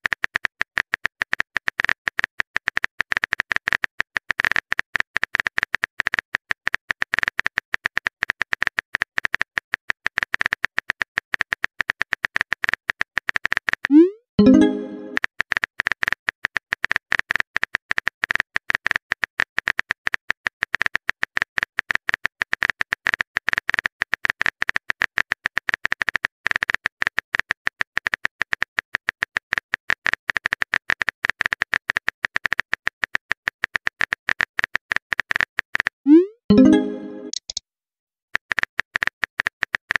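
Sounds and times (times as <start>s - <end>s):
phone keyboard clicks: 36.6s - 37.6s.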